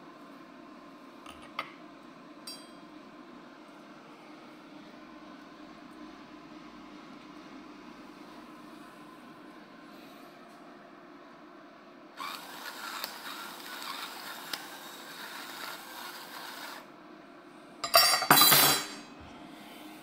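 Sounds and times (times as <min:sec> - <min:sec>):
electric pepper mill grinding: 0:12.2 - 0:16.9.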